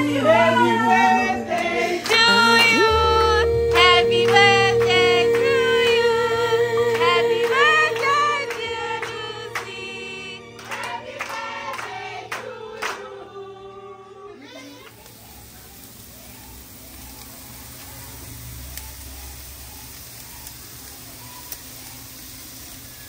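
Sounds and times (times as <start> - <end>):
person singing long notes: 0.0 - 10.6
sustained chords: 0.0 - 14.4.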